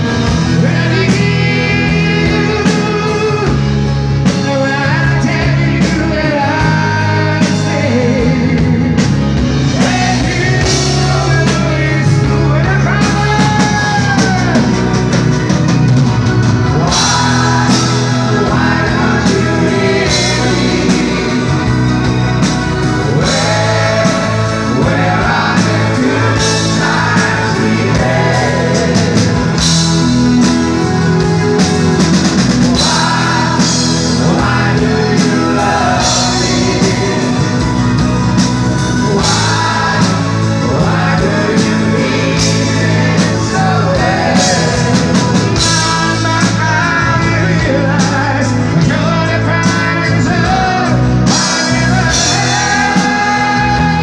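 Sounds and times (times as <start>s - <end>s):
man singing: 0.0s - 32.0s, 32.6s - 54.0s
acoustic guitar: 0.0s - 54.0s
drums: 0.0s - 54.0s
keyboards: 0.0s - 54.0s.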